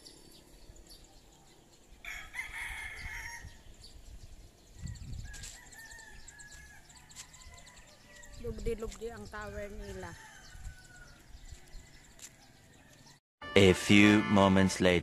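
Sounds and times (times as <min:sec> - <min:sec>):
rooster crowing: 0:02.0 - 0:03.6, 0:10.0 - 0:13.1.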